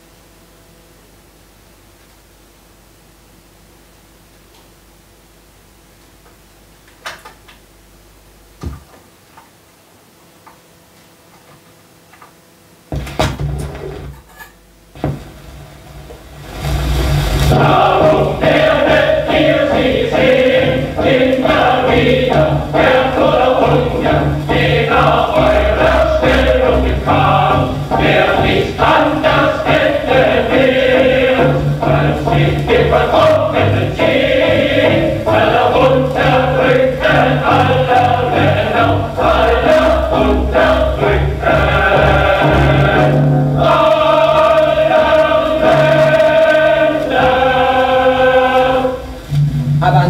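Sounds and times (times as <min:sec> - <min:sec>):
record surface noise: 0:03.8 - 0:50.0
choir singing with accompaniment: 0:16.5 - 0:50.0.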